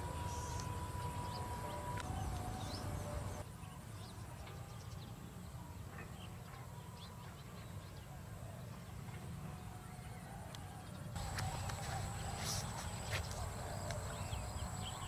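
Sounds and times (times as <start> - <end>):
bird chirps: 0.0 - 8.1.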